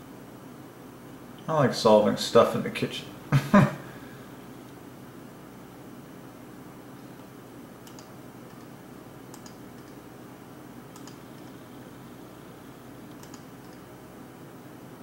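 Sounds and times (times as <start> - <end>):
steady low hum: 0.0 - 15.0
computer mouse clicking: 7.8 - 10.0, 10.9 - 11.6, 13.0 - 13.9.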